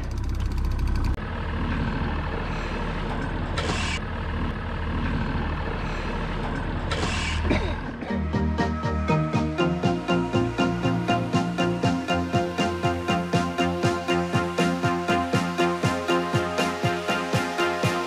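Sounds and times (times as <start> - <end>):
boat motor running: 0.0 - 18.0
music: 8.0 - 18.0.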